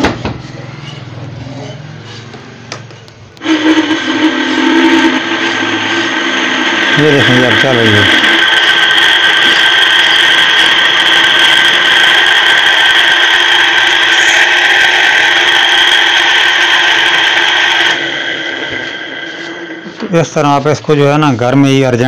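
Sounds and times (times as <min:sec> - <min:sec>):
electric motor whining: 0:03.4 - 0:20.4.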